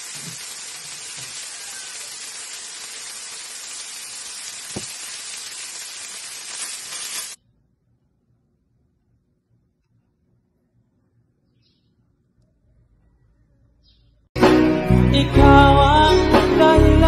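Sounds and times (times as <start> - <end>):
fish sizzling in frying pan: 0.0 - 7.4.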